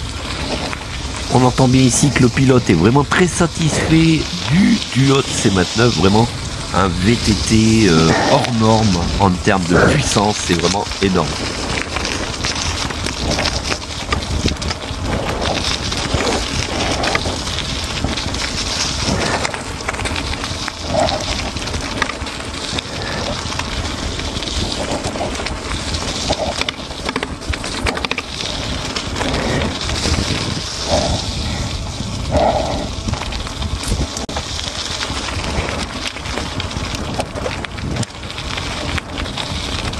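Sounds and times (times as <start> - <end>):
tyres crunching over gravel: 0.0 - 39.9
wind on microphone: 5.1 - 22.1, 28.5 - 39.9.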